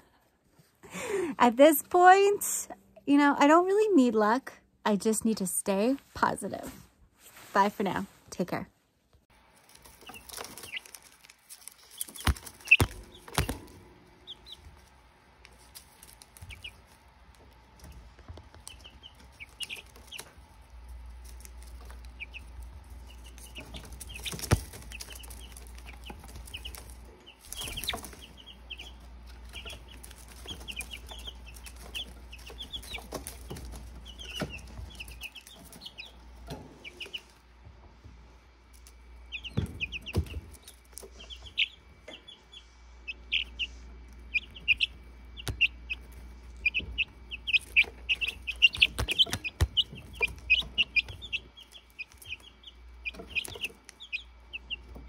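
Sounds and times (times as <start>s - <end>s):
baby chicks peeping: 9.4s - 55.0s.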